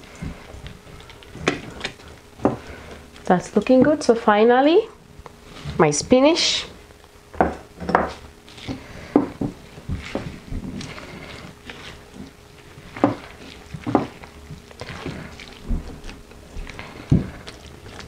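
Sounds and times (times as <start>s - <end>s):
spatula stirring wet batter: 8.1s - 18.0s.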